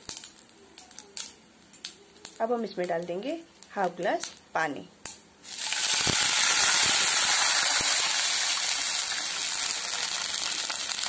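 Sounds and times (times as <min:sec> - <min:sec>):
water hissing in hot oil: 0:05.4 - 0:11.0.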